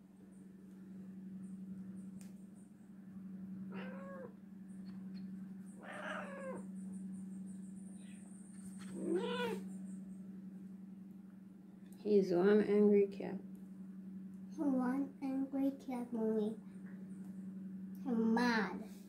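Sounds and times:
cat yowling: 0:03.7 - 0:04.4, 0:05.8 - 0:06.7, 0:08.9 - 0:09.6.

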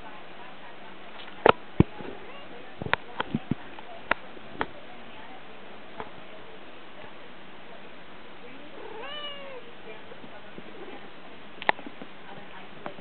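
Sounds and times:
cat meowing: 0:08.8 - 0:09.7.

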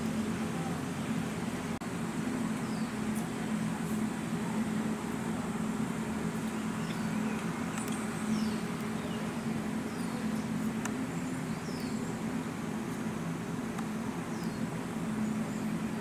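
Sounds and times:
outdoor background hum: 0:00.0 - 0:16.0.

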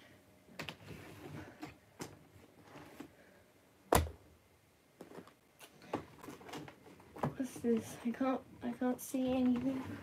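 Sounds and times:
clicks and rustles of handling: 0:05.0 - 0:08.2.

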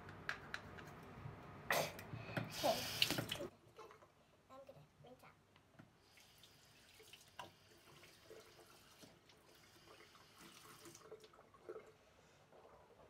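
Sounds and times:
tap water running into sink: 0:02.3 - 0:03.5, 0:06.1 - 0:12.0.

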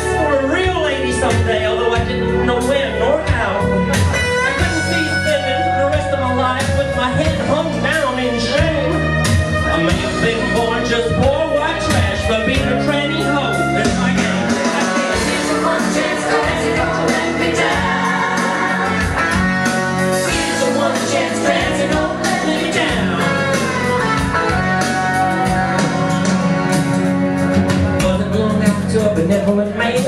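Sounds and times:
backing music track: 0:00.0 - 0:30.0
person singing: 0:20.2 - 0:24.3.

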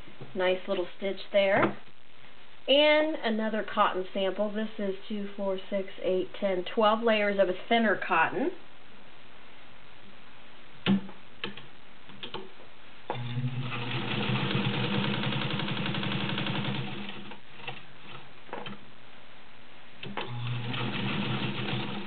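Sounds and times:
sewing machine stitching: 0:13.2 - 0:17.8, 0:20.0 - 0:22.0.

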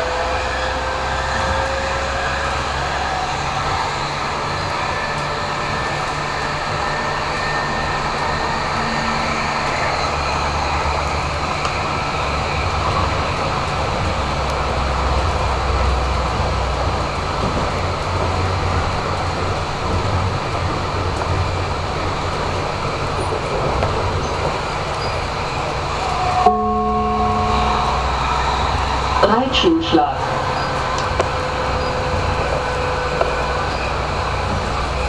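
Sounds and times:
tram wheels rumbling on rails: 0:00.0 - 0:35.0
low hum: 0:26.1 - 0:35.0.

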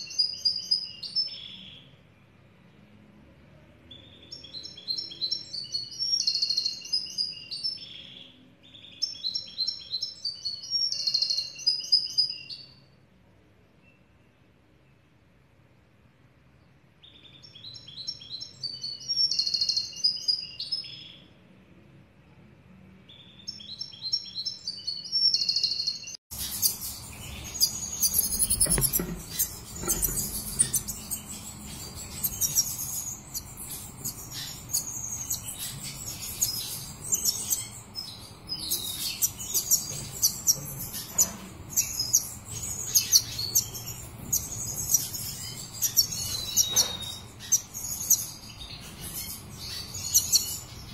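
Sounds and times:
high bird chirping: 0:03.9 - 0:12.8, 0:23.2 - 0:50.9
bird twittering: 0:25.2 - 0:50.9
knocks: 0:28.3 - 0:30.9.

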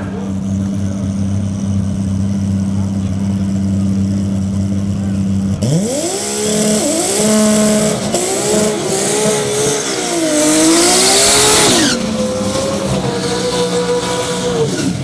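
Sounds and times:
car engine revving high: 0:00.0 - 0:15.0
tyres screeching: 0:06.4 - 0:15.0.

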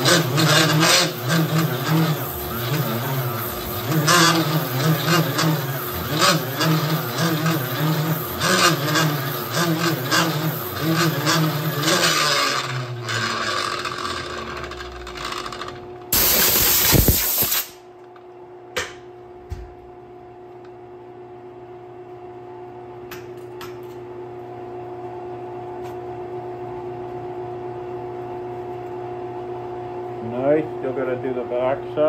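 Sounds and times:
grinder grinding rubber tire: 0:00.0 - 0:17.8
machine hum: 0:00.0 - 0:18.1.

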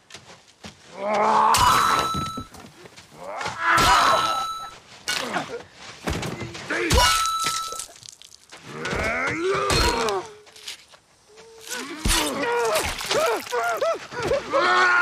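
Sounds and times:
men groaning in pain: 0:08.7 - 0:10.5, 0:11.5 - 0:15.0.

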